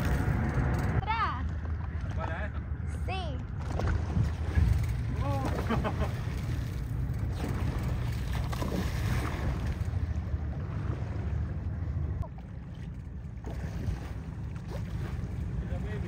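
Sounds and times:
wind rumbling on microphone: 0:00.0 - 0:16.0
water lapping: 0:03.5 - 0:16.0.

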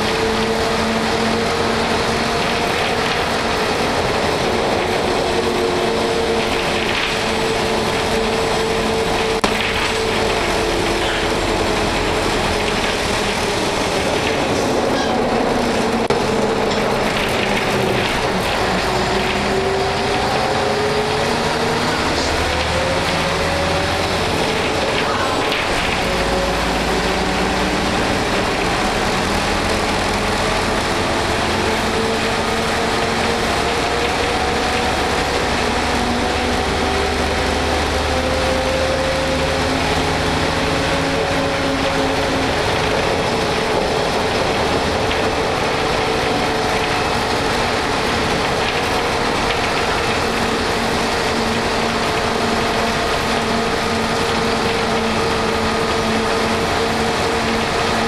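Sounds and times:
bus body rattle: 0:00.0 - 0:20.2
bus diesel engine running: 0:00.0 - 0:58.0
road noise: 0:00.0 - 0:58.0.

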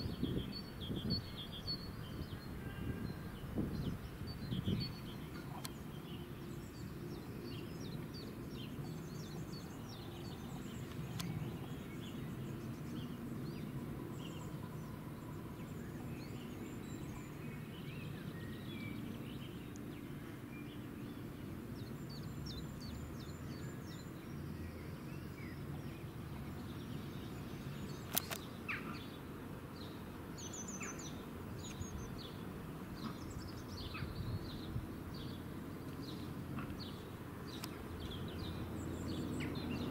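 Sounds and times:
birds chirping: 0:00.0 - 0:39.9
sharp click: 0:28.0 - 0:28.5.

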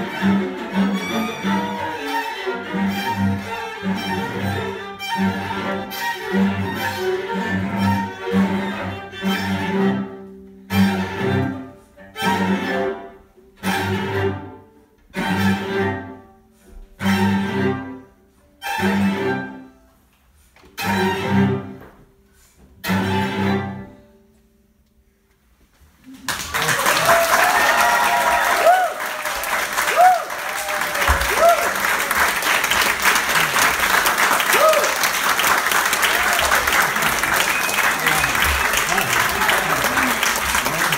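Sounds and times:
string quartet playing: 0:00.0 - 0:24.4, 0:29.3 - 0:40.9
applause: 0:26.2 - 0:40.9.

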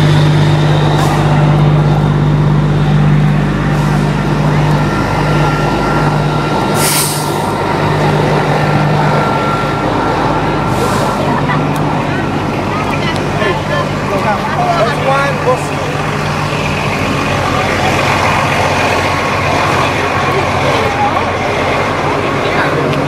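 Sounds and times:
buses idling: 0:00.0 - 0:23.0
air brake hiss: 0:06.8 - 0:07.5.

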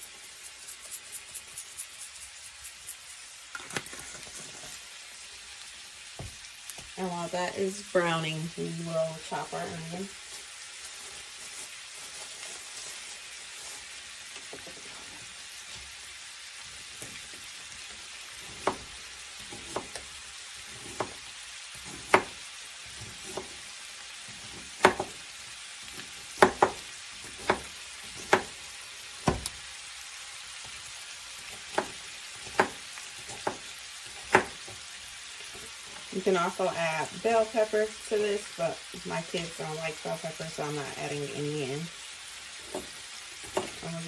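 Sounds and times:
meat sizzling in a skillet: 0:00.0 - 0:44.0
knife chopping on cutting board: 0:18.4 - 0:20.1, 0:20.7 - 0:22.4, 0:23.0 - 0:23.6, 0:24.4 - 0:25.2, 0:25.9 - 0:28.6, 0:29.2 - 0:29.6, 0:31.5 - 0:34.8, 0:42.6 - 0:43.8.

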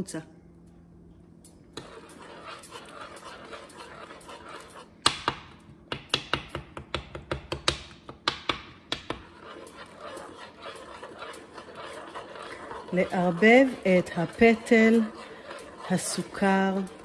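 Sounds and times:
metal spoon scraping saucepan: 0:01.8 - 0:05.0, 0:09.1 - 0:17.0.

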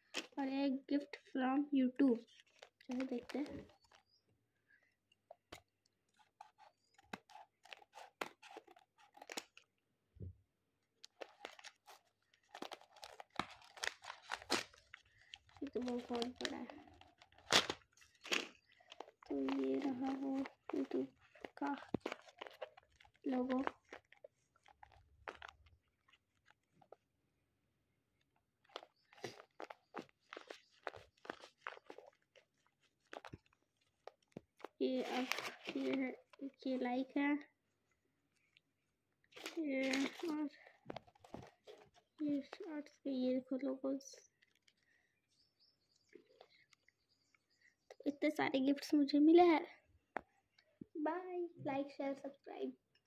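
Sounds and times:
paper crinkling: 0:02.0 - 0:04.4, 0:05.2 - 0:09.8, 0:10.8 - 0:27.2, 0:28.2 - 0:37.1, 0:39.3 - 0:43.0, 0:44.3 - 0:47.2
scissors snipping paper: 0:02.2 - 0:04.2, 0:05.5 - 0:09.7, 0:11.0 - 0:26.6, 0:28.6 - 0:36.2, 0:39.4 - 0:42.7.

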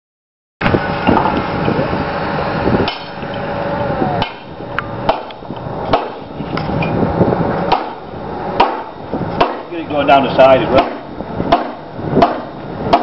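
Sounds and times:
steady background noise: 0:00.6 - 0:13.0
hammer striking slate: 0:10.8 - 0:13.0.

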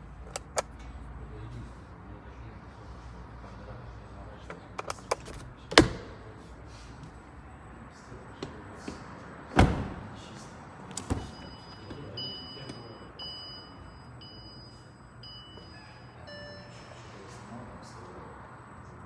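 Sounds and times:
electronic warning chime: 0:11.3 - 0:17.3.

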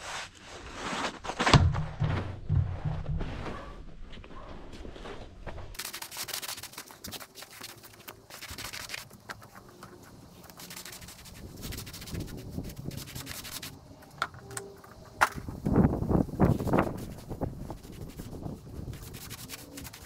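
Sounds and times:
brush scrubbing stone slabs: 0:05.8 - 0:15.0, 0:16.4 - 0:20.0.

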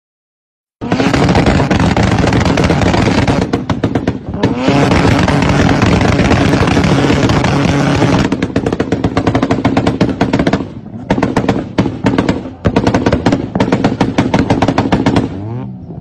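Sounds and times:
exhaust pops and crackles: 0:00.8 - 0:15.9
engine buzzing at rev limiter: 0:04.2 - 0:08.4, 0:14.2 - 0:16.0.

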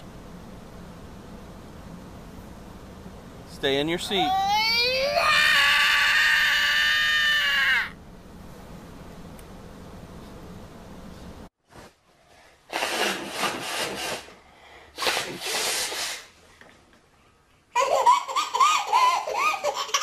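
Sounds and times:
person blowing nose: 0:12.7 - 0:14.4, 0:15.0 - 0:16.4
baby laughing: 0:17.7 - 0:20.0.

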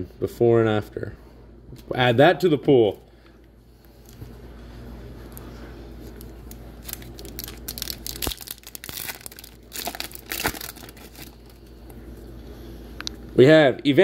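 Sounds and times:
foil wrapper crackling: 0:06.0 - 0:11.7.

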